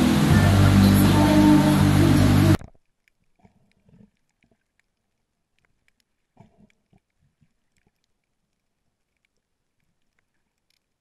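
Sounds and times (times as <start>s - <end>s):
background music: 0.0s - 2.6s
faint underwater crackles and knocks: 2.6s - 11.0s.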